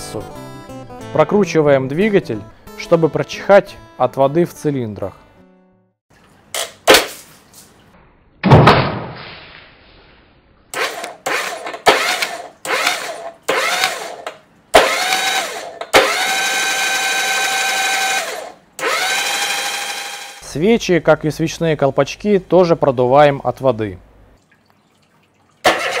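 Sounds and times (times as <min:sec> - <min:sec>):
starter motor cranking: 0:10.7 - 0:20.4, 0:25.6 - 0:26.0.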